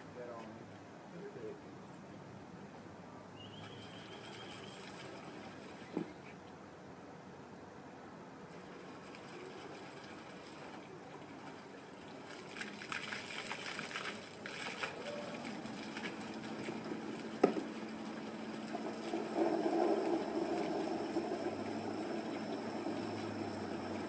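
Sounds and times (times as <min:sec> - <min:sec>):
fountain pump splashing water: 0:03.4 - 0:06.2, 0:08.5 - 0:24.0
motor hum: 0:08.5 - 0:24.0.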